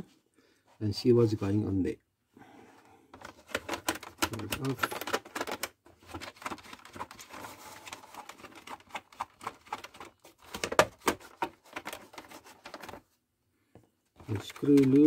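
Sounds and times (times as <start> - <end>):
fingers clicking on plastic: 3.2 - 7.2, 14.2 - 15.0.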